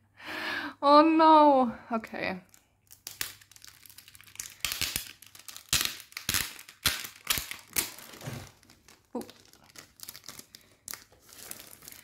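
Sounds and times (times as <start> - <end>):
plastic packaging crinkling: 2.4 - 12.0.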